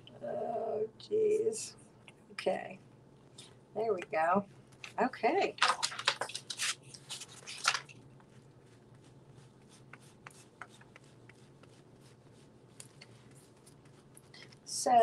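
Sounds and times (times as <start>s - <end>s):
paper rustling and crinkling: 4.8s - 9.9s
paintbrush scraping on paper: 6.2s - 14.8s.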